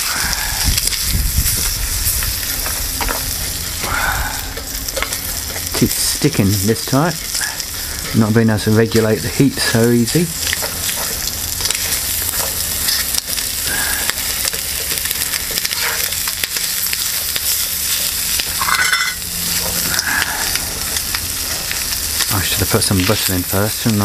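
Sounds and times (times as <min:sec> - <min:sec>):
bacon sizzling in a pot: 0:00.0 - 0:24.0.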